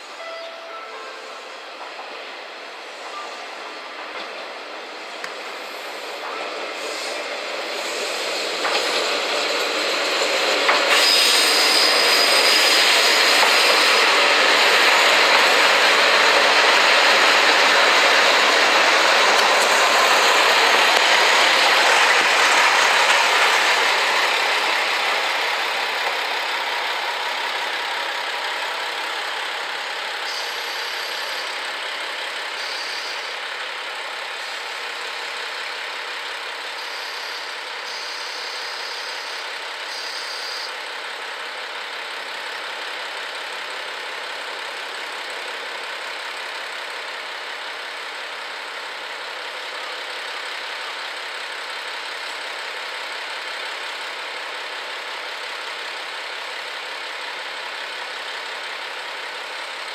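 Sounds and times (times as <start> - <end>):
high wheel squeal: 0.0 - 2.2, 5.7 - 25.4, 30.2 - 31.6, 32.6 - 33.4, 36.8 - 40.8
diesel railcar engines: 0.0 - 59.9
train wheels on rails: 0.0 - 59.9.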